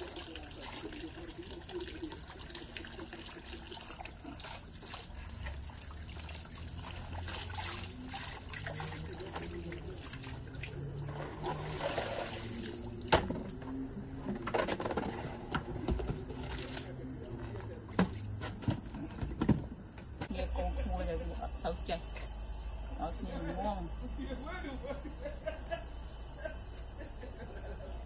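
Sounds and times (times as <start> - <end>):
water trickling into plastic basin: 0.0 - 15.2.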